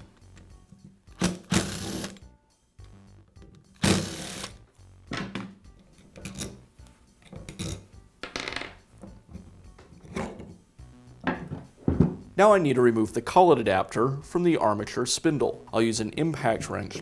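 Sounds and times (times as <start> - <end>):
tools knocking on wooden workbench: 11.2 - 12.3.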